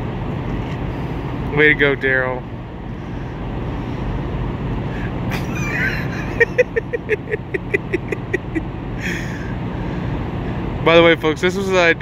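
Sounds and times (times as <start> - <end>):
vehicle engines idling: 0.0 - 12.0
person laughing: 5.3 - 9.5.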